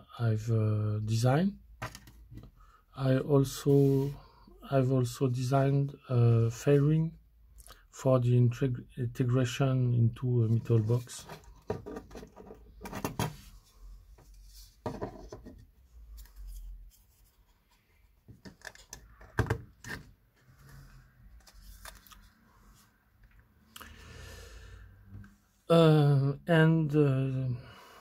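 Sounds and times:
plastic parts scraping: 10.5 - 13.5, 18.3 - 22.4.

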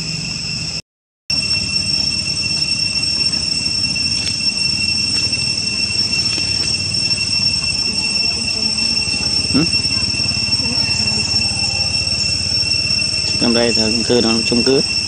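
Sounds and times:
cicada chorus drone: 0.0 - 15.0
continuous low rumble: 0.0 - 15.0.

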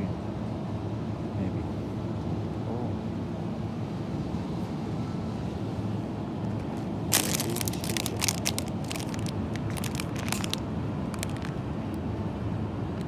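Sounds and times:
plastic bread bag crinkling: 7.1 - 11.6.

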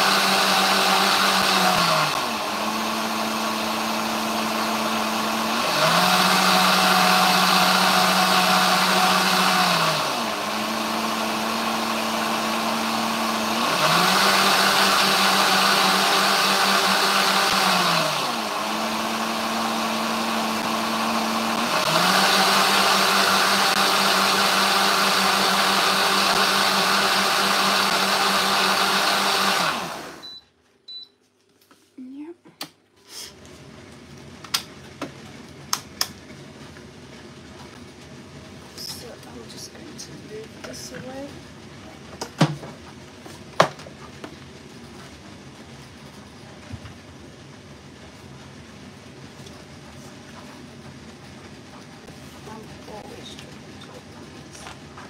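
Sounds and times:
blender motor running: 0.0 - 30.3.

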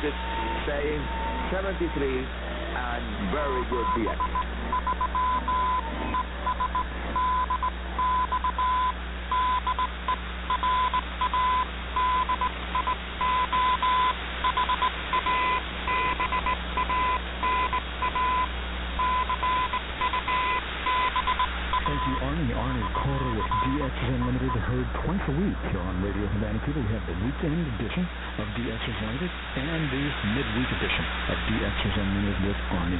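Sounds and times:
low hum: 0.0 - 32.9
radio static hiss: 0.0 - 32.9
morse code beeps: 3.5 - 24.7.

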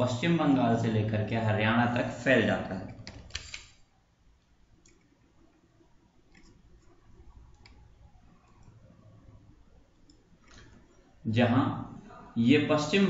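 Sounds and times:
faint room hum: 0.0 - 13.0
soft computer mouse clicks: 4.8 - 5.1, 6.3 - 8.8.

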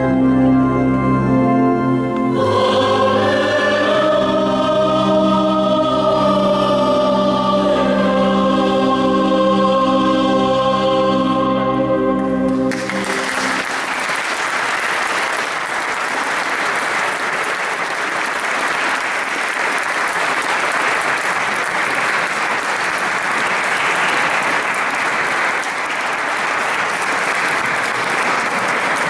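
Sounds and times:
choir and organ chord: 0.0 - 14.3
audience applauding: 12.5 - 29.0.

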